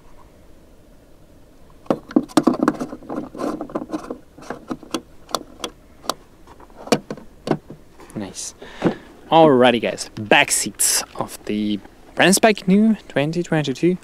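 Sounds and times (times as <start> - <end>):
rustling: 1.7 - 9.3
sharp clicks and knocks: 1.8 - 7.8.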